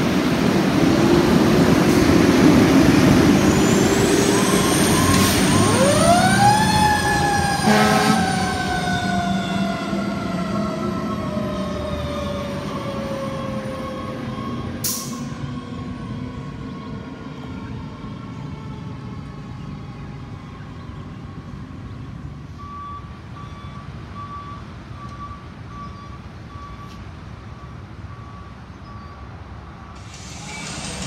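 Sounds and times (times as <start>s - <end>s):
traffic rumble: 0.0s - 31.0s
reversing beeper: 3.4s - 6.9s
faint siren: 3.4s - 22.0s.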